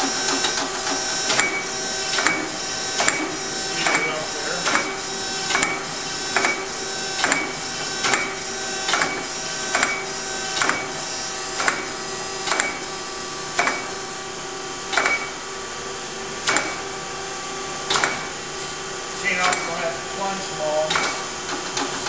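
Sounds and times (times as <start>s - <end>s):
machine table clacking: 0.0s - 12.9s, 19.3s - 22.0s
grinder machine humming: 0.0s - 22.0s.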